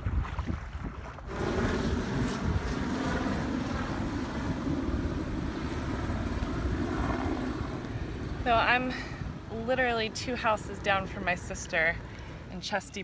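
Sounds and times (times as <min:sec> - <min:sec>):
thin high whine: 0:01.3 - 0:08.7
helicopter engine and rotor: 0:01.3 - 0:09.2.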